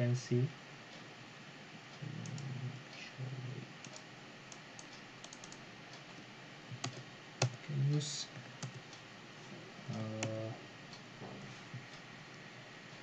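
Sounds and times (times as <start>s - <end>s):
computer keyboard keystrokes: 3.8s - 5.6s, 6.8s - 7.6s, 8.6s - 8.8s.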